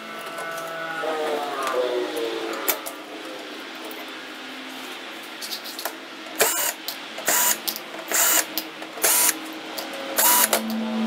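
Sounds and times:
electric screwdriver whining: 6.4s - 9.4s, 10.2s - 10.7s.

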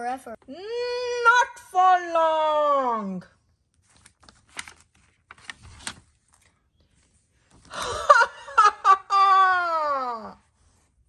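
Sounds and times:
book page turning: 3.5s - 7.7s
child evil laugh: 7.8s - 10.4s.

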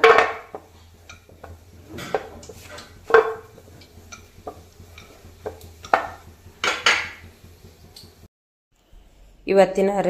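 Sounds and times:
rolling pin on metal plate: 0.0s - 7.8s.

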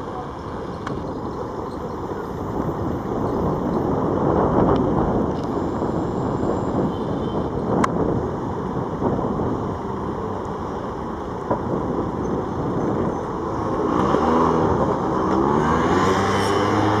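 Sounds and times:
traffic rumble: 0.0s - 17.0s
car engine pulling away: 12.3s - 17.0s.

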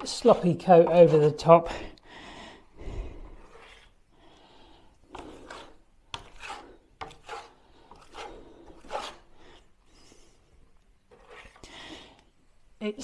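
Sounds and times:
spatula scraping wet plaster: 0.0s - 1.7s, 3.2s - 10.3s, 11.1s - 11.8s.

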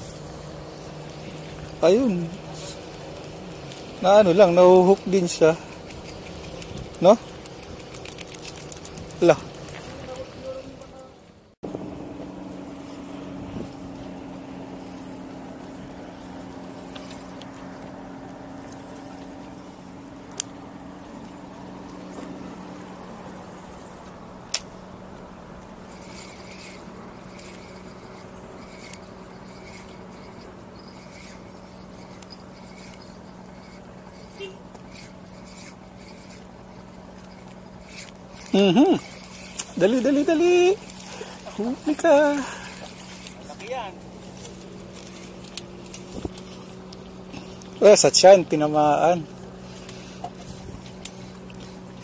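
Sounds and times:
car engine idling: 0.0s - 52.0s
sharp clicks: 24.1s - 24.8s.

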